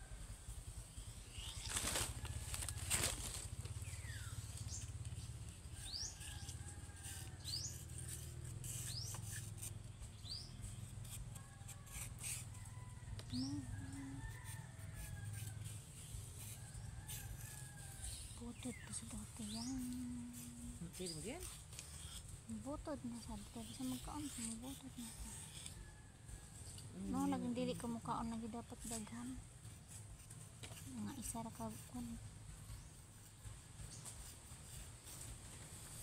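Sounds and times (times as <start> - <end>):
faint birdsong: 0.0 - 30.0, 30.6 - 36.0
knife scraping leaves: 0.9 - 36.0
palm leaves rustling and crackling: 1.2 - 6.2.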